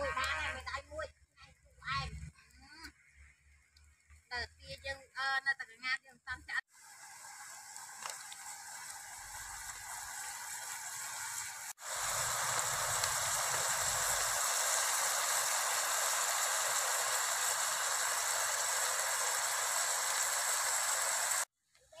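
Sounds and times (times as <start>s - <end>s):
food sizzling in a pot: 6.7s - 21.5s.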